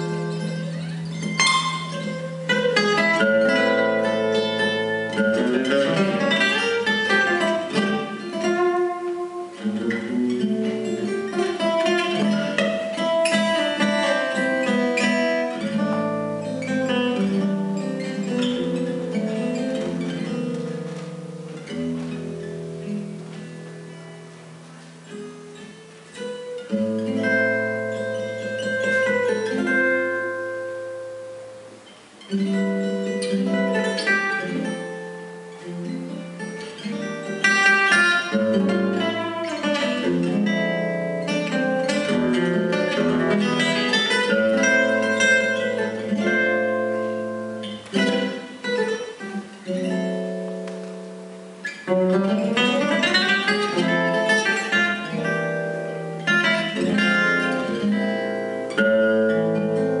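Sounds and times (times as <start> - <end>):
solo acoustic jazz guitar: 0.0 - 60.0.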